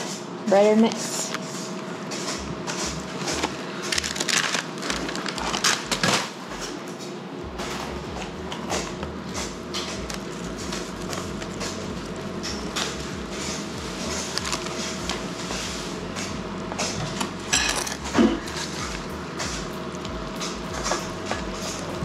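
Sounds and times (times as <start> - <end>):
plastic bag crinkling: 3.0 - 6.9, 7.6 - 16.0.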